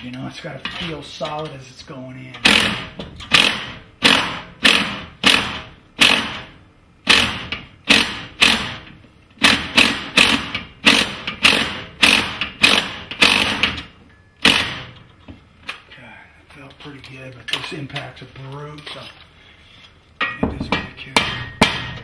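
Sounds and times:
impact driver bursts: 2.4 - 15.0.

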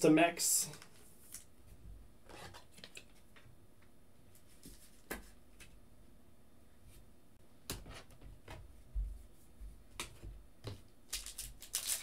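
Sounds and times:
faint card handling sounds: 0.6 - 1.5.

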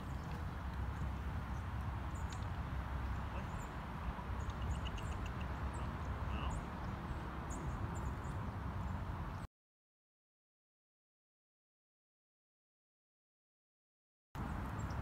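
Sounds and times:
small birds chirping: 0.0 - 9.4
bird trill: 4.4 - 6.7.

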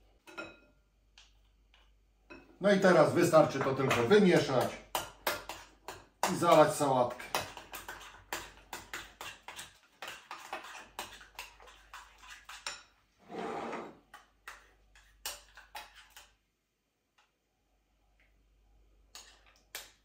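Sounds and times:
spoon scraping bowl: 6.3 - 14.2.

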